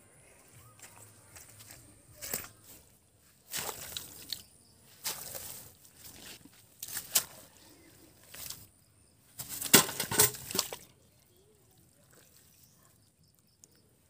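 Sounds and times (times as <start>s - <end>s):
hands squelching in wet mud: 2.2s - 8.7s, 9.4s - 14.0s.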